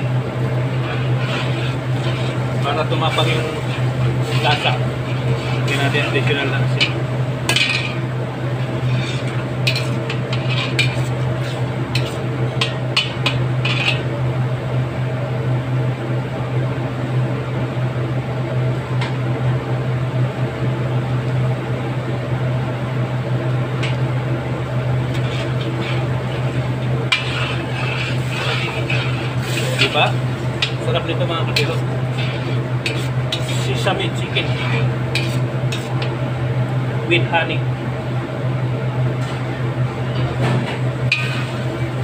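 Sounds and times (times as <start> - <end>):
sauce bubbling in a wok: 0.0 - 2.6, 24.0 - 36.4
steady low hum: 0.0 - 42.0
metal spoon scraping a wok: 0.6 - 14.1, 25.0 - 36.2, 41.1 - 41.8.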